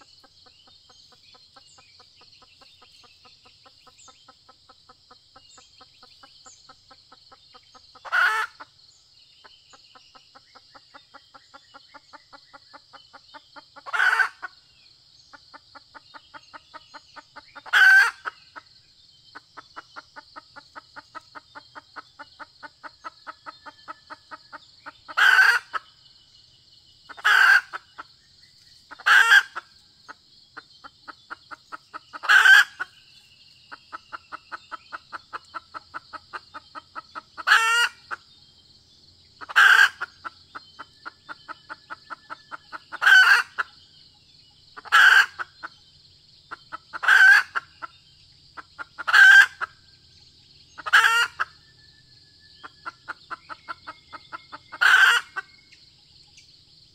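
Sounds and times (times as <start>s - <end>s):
junglefowl soft clucks: 0.0s - 26.4s, 27.0s - 38.4s, 39.2s - 45.8s, 46.4s - 51.7s, 52.5s - 55.8s.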